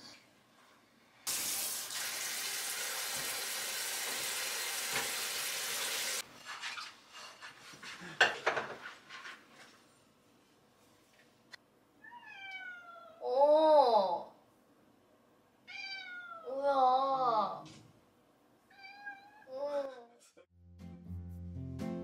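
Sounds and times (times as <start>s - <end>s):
tap running into sink: 1.3s - 6.1s.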